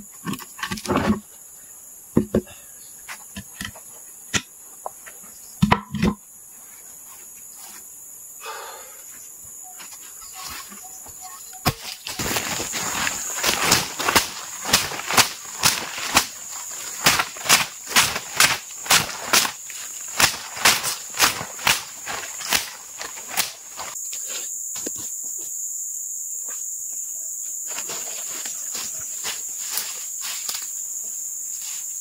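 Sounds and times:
insects droning: 0.0 - 32.0
footsteps crunching on wood chips: 9.8 - 24.0, 27.7 - 30.7.

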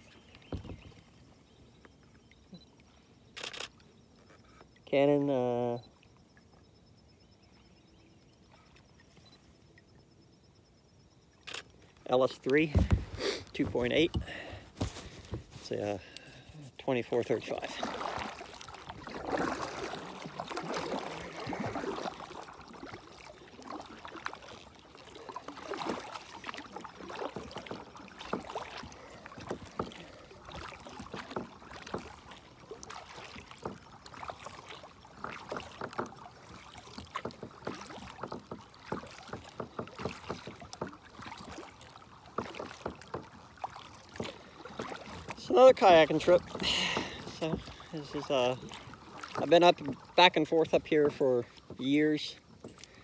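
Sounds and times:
paddle splashing in water: 0.0 - 3.1, 11.4 - 53.0
paddle knocks: 0.3 - 1.0, 12.3 - 15.9, 25.5 - 53.0.

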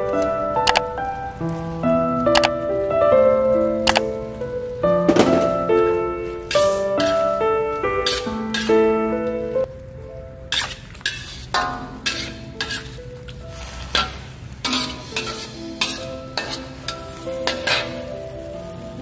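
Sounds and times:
oil sizzling: 0.0 - 19.0
spatula scraping metal wok: 6.4 - 8.9, 10.5 - 19.0.

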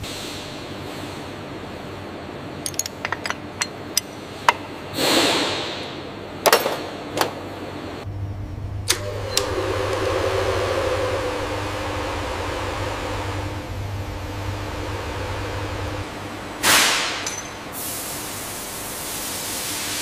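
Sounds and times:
droning machine hum: 0.0 - 19.0
metal parts clinking: 2.6 - 4.7, 17.2 - 17.6.

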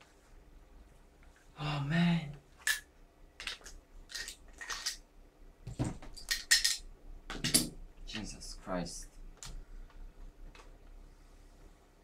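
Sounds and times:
metal parts clicking and clacking: 6.1 - 6.8.

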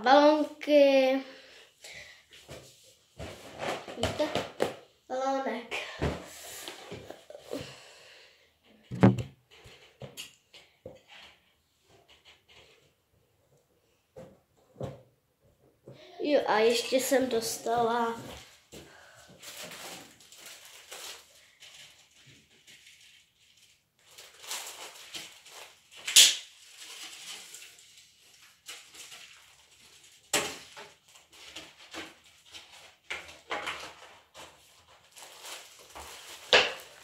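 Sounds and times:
sharp knocks: 8.9 - 9.3
rustling: 17.3 - 37.0
objects clattering: 28.6 - 37.0.

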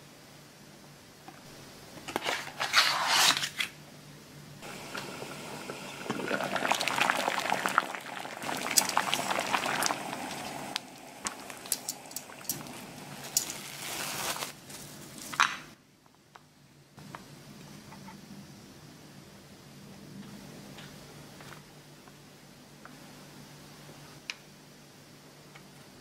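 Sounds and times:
water boiling in a pot: 4.6 - 15.2
sharp clicks and drips: 8.5 - 12.8
cardboard packaging rustling: 13.1 - 15.4.

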